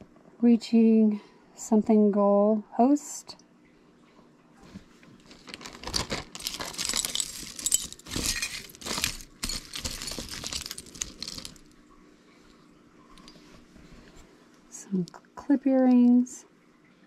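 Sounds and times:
jewelry clinking and rattling: 5.3 - 11.7.

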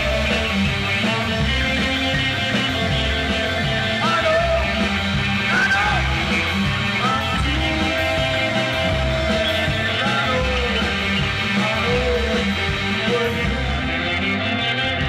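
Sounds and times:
electric guitar melody bending: 0.0 - 15.0
live rock band: 0.0 - 15.0.

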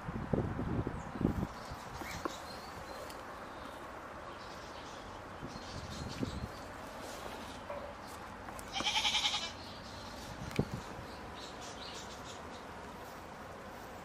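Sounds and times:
goat bleating: 8.7 - 9.6.

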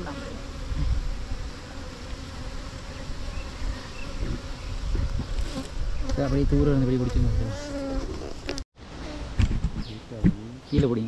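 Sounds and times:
honeybees buzzing: 0.0 - 11.0.

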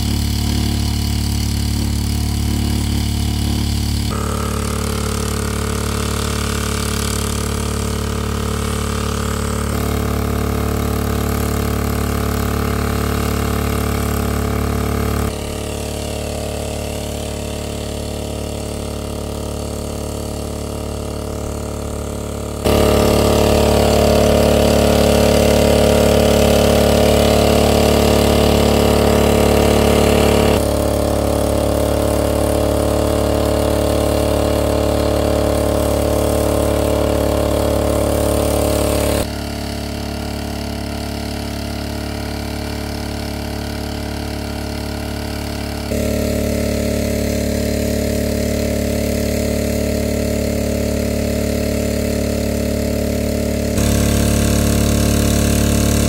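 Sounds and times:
engine-driven water pump running: 0.0 - 56.0.

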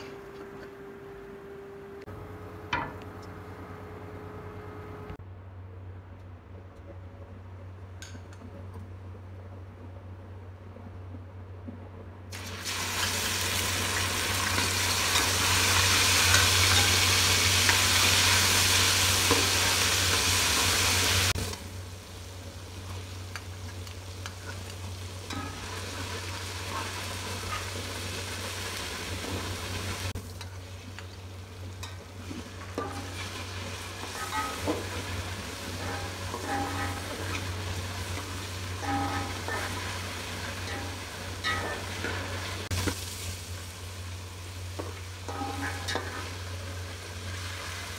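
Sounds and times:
food sizzling in hot oil: 12.3 - 47.9
metal spatula scraping pot: 35.7 - 37.7.

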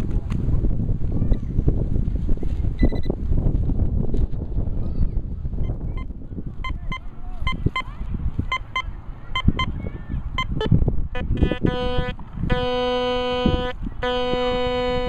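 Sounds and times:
wind rumble on microphone: 0.0 - 15.0
metal detector high beeps: 2.8 - 3.1, 5.6 - 7.9, 8.5 - 9.7, 10.4 - 10.7
metal detector low buzzing tone: 10.4 - 15.0.

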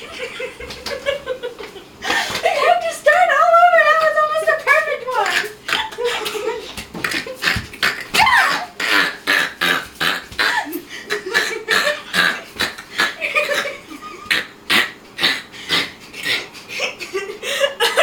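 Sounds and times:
woman laughing uncontrollably: 0.0 - 2.6, 10.4 - 12.4, 13.0 - 14.5, 16.7 - 18.0.

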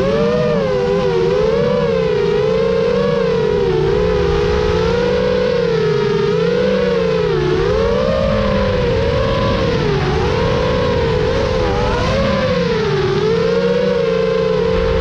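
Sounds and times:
quadcopter motors whining: 0.0 - 15.0
low rumble: 14.4 - 15.0.

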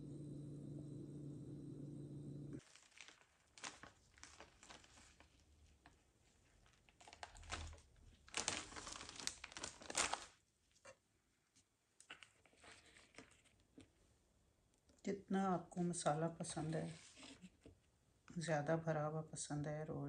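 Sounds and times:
low steady hum: 0.0 - 2.6
plastic packet crinkling: 2.6 - 10.4.

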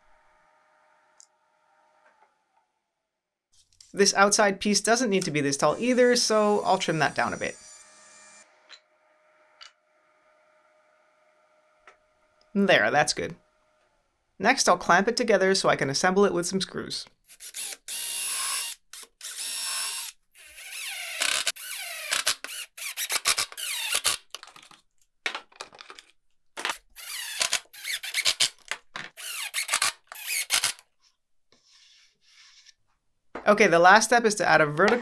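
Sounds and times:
cordless drill whining: 17.3 - 24.2, 26.8 - 28.5, 29.2 - 30.8.

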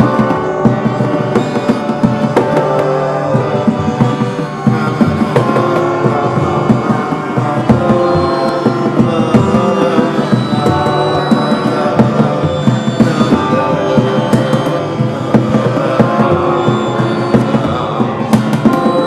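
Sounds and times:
hand drum percussion: 0.0 - 19.0
sustained pitched tones: 0.0 - 19.0.

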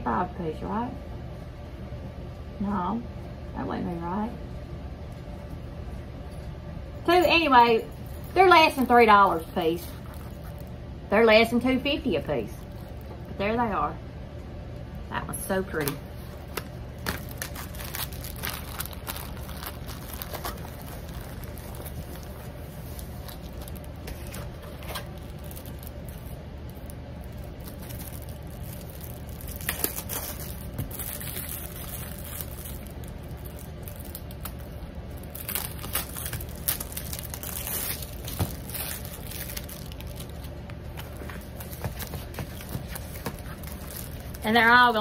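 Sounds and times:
plastic crinkling and rustling: 7.3 - 10.8, 12.4 - 13.3, 15.7 - 45.0.

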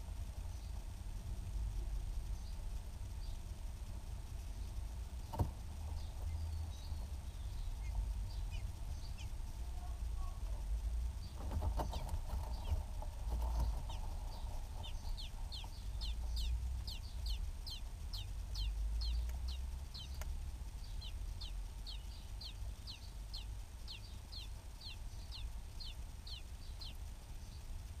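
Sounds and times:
low rumble: 0.0 - 28.0
nestling peeping: 1.7 - 28.0.

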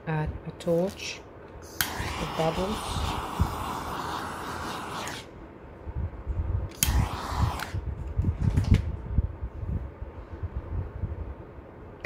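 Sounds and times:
gas torch hissing: 1.6 - 5.4, 6.7 - 8.0.

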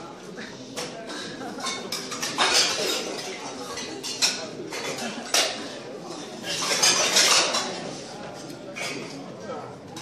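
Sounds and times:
crowd voices: 0.0 - 10.0.

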